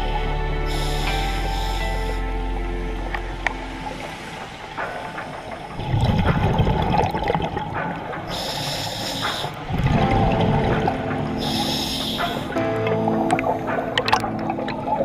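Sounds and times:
hissing regulator inhalation: 0.7s - 2.3s, 8.3s - 9.6s, 11.4s - 12.6s
exhaled air bubbling underwater: 0.7s - 15.0s.

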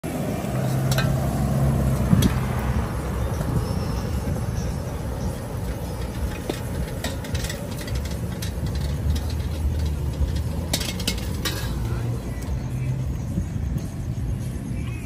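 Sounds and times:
gas burner roaring: 0.0s - 15.0s
metallic clicks of utensils: 5.6s - 12.5s.

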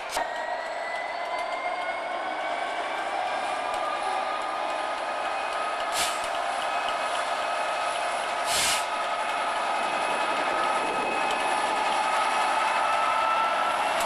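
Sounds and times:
diesel locomotive droning: 0.0s - 14.0s
brief rush of noise: 8.4s - 9.0s.

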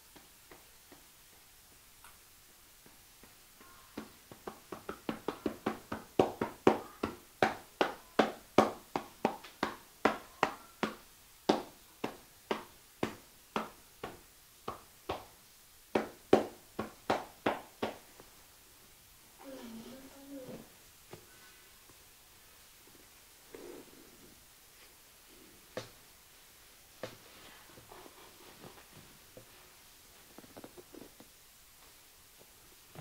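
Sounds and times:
hands slapping body: 2.8s - 18.0s.

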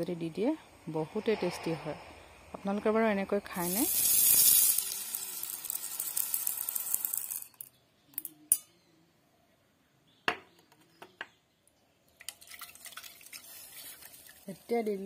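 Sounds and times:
lentils pouring into steel bowl: 3.5s - 7.7s.

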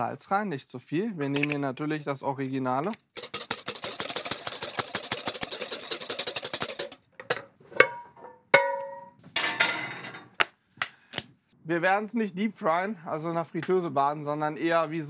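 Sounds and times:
whisk clicking in bowl: 3.1s - 7.0s
whisk knocking against bowl: 3.2s - 7.0s.

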